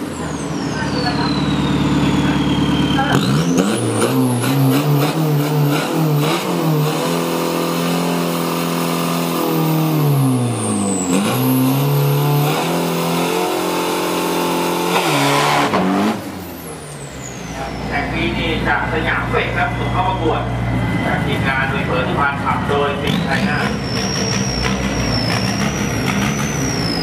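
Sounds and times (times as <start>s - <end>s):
diesel engine revving: 0.0s - 27.0s
turbo whistle: 0.2s - 4.0s, 23.2s - 27.0s.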